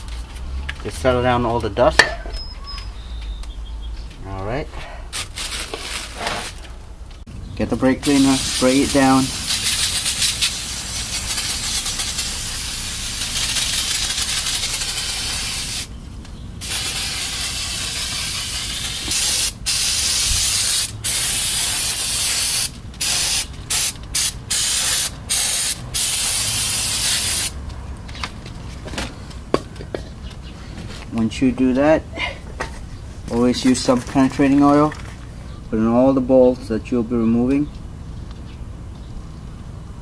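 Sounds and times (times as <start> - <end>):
aerosol spray hissing: 8.0 - 15.9, 16.6 - 27.6.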